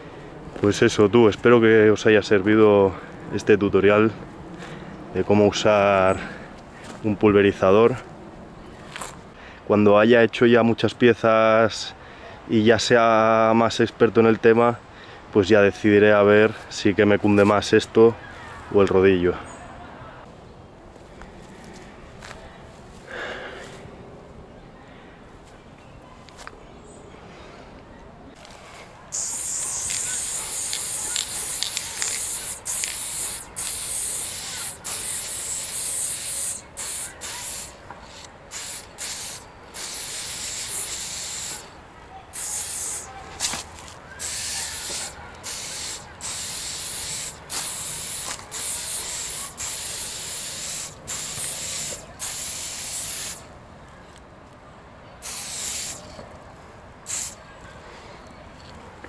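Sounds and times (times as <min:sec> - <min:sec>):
spray nozzle hissing: 0:29.1 - 0:37.8, 0:38.5 - 0:41.7, 0:42.3 - 0:43.1, 0:44.2 - 0:53.4, 0:55.2 - 0:56.0, 0:57.1 - 0:57.4.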